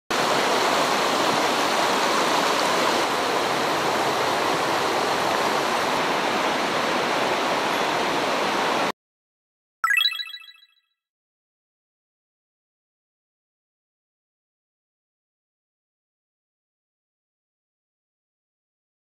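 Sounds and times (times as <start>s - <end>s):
mountain stream flowing: 0.1s - 8.9s
short bright chime: 9.8s - 10.7s.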